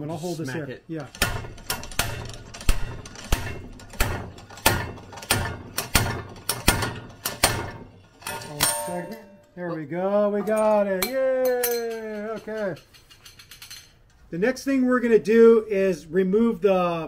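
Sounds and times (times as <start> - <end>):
slide hammer metallic clanks: 1.0 - 9.6, 10.4 - 14.0.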